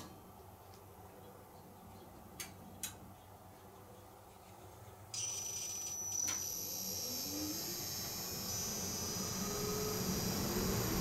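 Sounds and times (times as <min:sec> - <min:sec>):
fan motor hum rising: 0:05.2 - 0:11.0
high-pitched electronic whine: 0:05.2 - 0:11.0.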